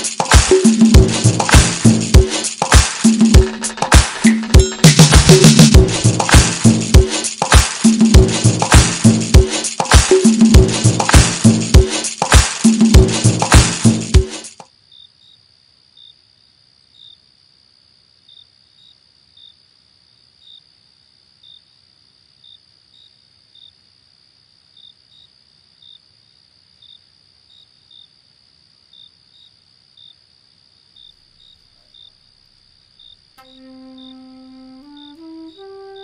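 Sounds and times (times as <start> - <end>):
cricket chirps: 14.2 - 36.0
crickets trilling: 14.6 - 36.0.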